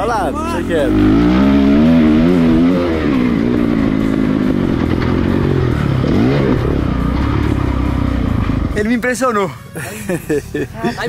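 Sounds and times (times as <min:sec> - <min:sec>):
dirt bike engine revving: 0:00.0 - 0:08.8.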